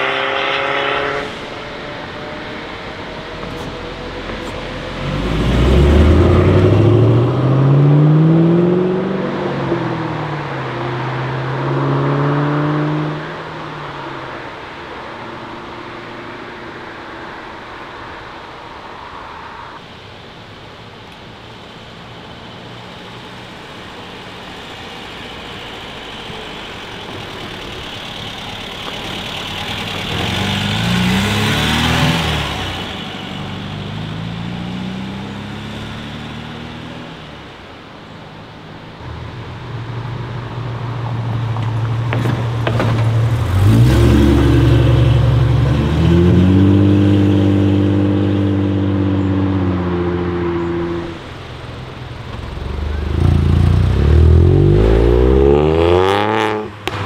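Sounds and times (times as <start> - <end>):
second car engine revving: 0.0 - 13.4, 23.6 - 37.7, 41.2 - 57.0
car engine accelerating: 0.0 - 14.7, 22.6 - 57.0.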